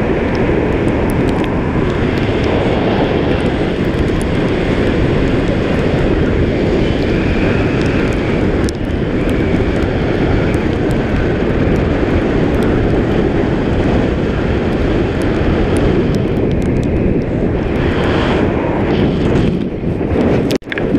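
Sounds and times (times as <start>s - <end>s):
wind buffeting microphone: 0.0s - 20.9s.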